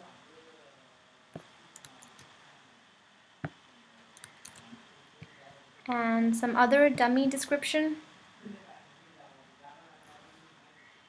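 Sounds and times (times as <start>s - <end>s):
mouse and keyboard clicks: 4.2s - 4.7s.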